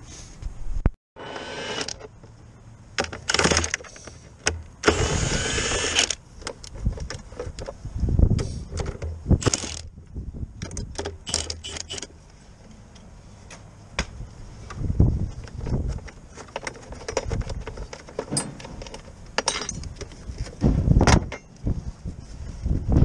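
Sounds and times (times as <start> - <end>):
tool clanking: 16.3 - 21.6.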